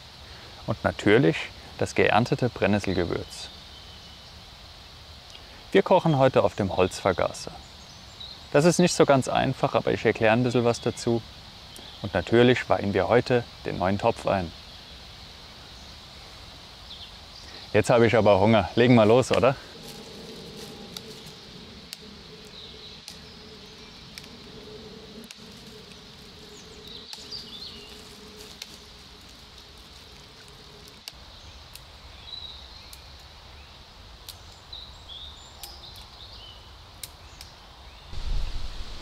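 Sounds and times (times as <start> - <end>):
branches rustling: 6.9 - 39.0
dry twigs snapping: 18.9 - 32.0, 32.8 - 33.4, 34.2 - 34.7, 35.5 - 36.2, 36.9 - 37.6.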